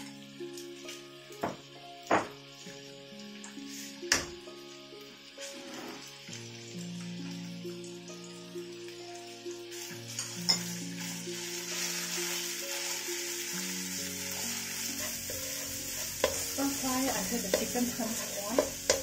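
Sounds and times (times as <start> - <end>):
meat sizzling in hot oil: 0.0 - 19.0
wooden spatula stirring: 14.5 - 19.0
spatula knocking against pan: 16.1 - 19.0.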